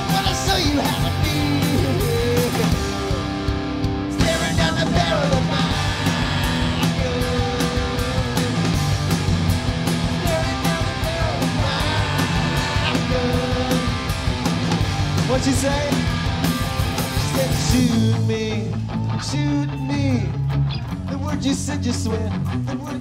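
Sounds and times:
punk rock band playing: 0.0 - 23.0.

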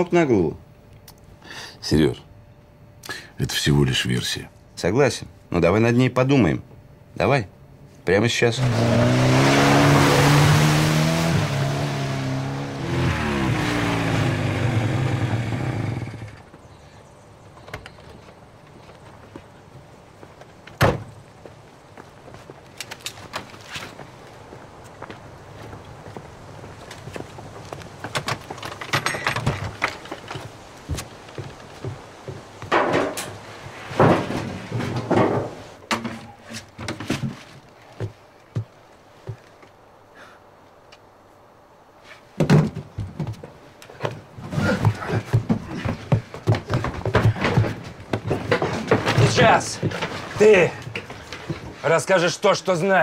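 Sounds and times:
car engine revving past: 8.6 - 16.3
knocks and clatter: 28.0 - 37.5, 42.4 - 51.8
heavy crashes and thuds: 32.7 - 35.7.

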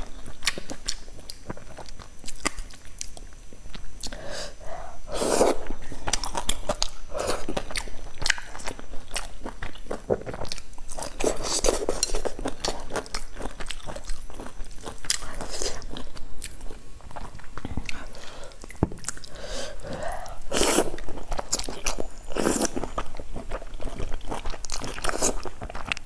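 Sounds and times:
wet chewing and crunchy biting: 6.0 - 19.3, 20.5 - 26.0.

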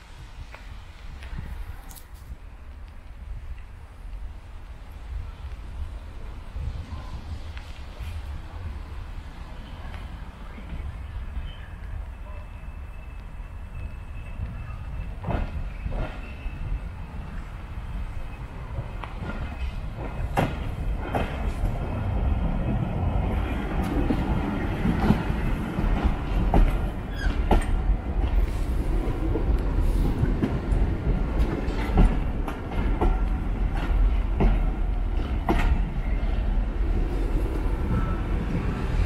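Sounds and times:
train wheels rumbling on track: 0.0 - 39.0
wheels clicking over rail joints: 18.1 - 38.8.

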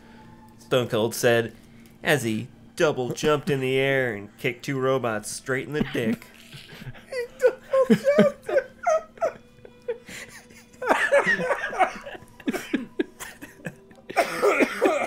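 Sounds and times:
people laughing: 5.8 - 15.0.

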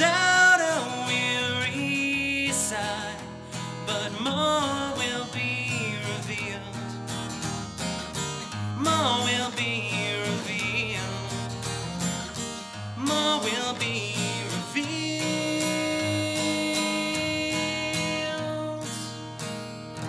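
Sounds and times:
person singing: 0.0 - 6.8, 8.8 - 11.6, 13.0 - 19.2
acoustic guitar strumming: 0.0 - 20.0.

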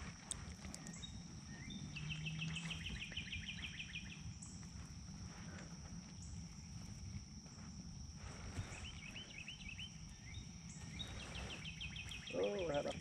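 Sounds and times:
songbird trilling: 8.8 - 13.0.

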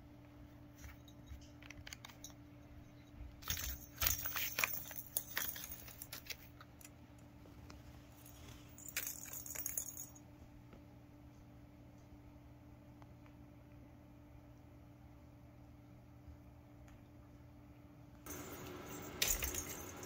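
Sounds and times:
toy bell ball jingling: 18.3 - 20.0.

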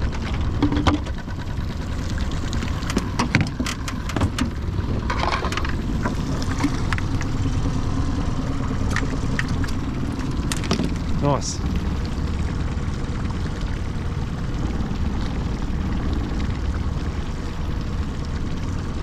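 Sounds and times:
steady low rumble: 0.0 - 19.0
fishing tackle clicking and knocking: 2.8 - 5.8, 10.4 - 11.0.

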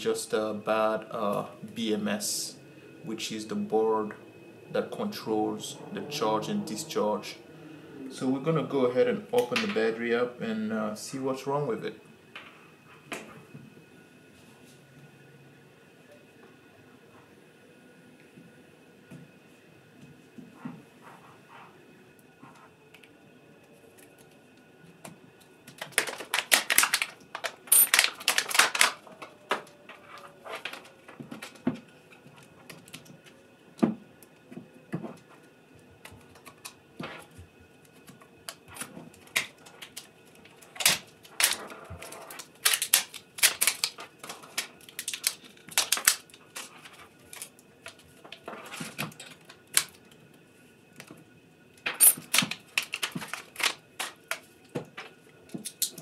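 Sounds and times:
plastic wrap crackling and tearing: 25.6 - 33.4, 36.3 - 50.1, 51.8 - 56.0.

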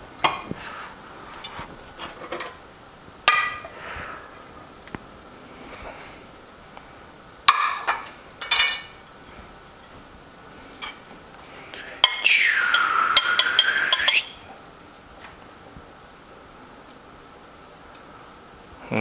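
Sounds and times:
utensils clinking on dishes: 7.5 - 9.4, 13.1 - 14.2.

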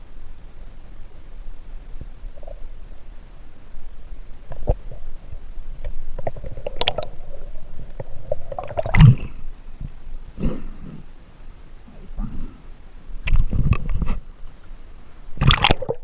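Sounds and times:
underwater gurgling and sloshing: 0.0 - 16.0.

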